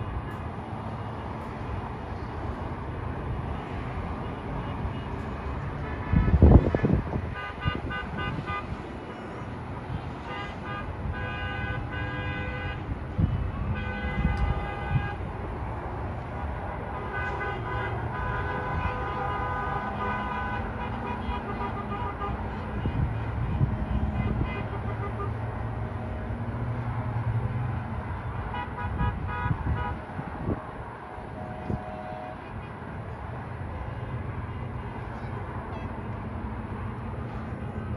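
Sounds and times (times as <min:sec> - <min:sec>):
road traffic rumble: 0:00.0 - 0:37.9
vehicle horns honking: 0:05.8 - 0:09.4, 0:10.0 - 0:15.3, 0:16.9 - 0:25.4, 0:28.3 - 0:30.1, 0:31.4 - 0:33.0, 0:34.4 - 0:36.1.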